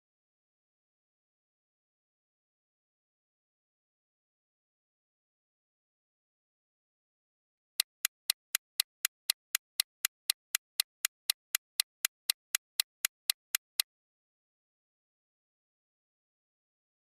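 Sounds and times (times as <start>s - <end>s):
timer ticking: 7.8s - 13.9s.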